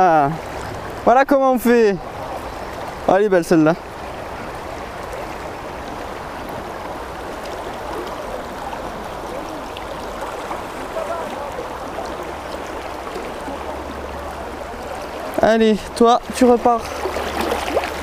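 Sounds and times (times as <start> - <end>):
fast-flowing river rushing: 0.0 - 18.0.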